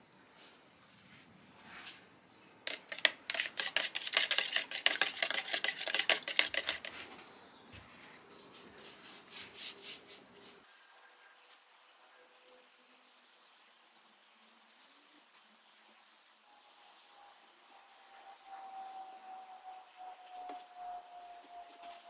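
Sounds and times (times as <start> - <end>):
paintbrush swishing on wood: 2.7 - 7.1
spoon scraping plastic tub: 2.7 - 7.1.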